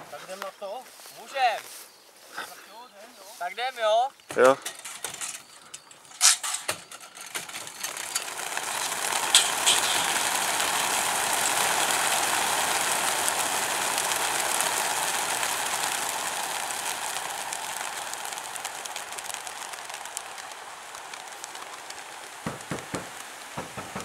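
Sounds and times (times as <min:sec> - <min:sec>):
pigeon wingbeats whirring: 0:04.9 - 0:24.0.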